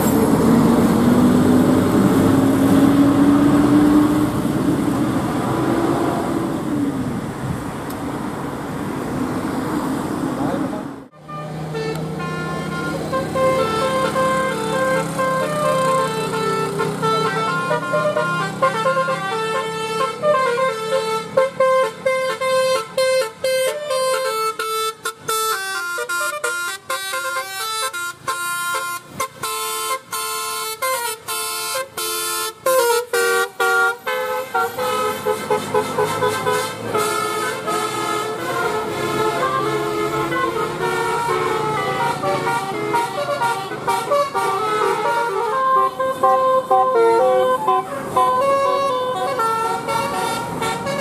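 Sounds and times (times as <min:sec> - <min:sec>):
multi-tone bus horn melody: 0:11.1 - 0:51.0.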